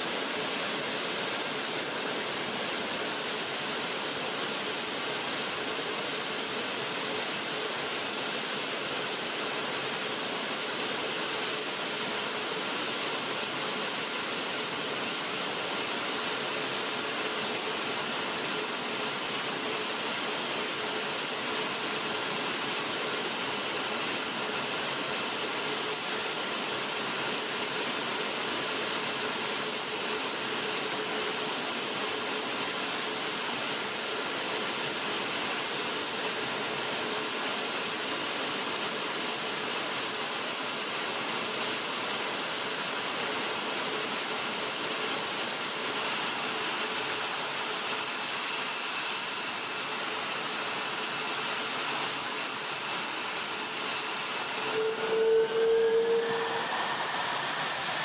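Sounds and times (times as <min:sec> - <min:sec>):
jet engines idling: 0:56.3 - 0:58.0.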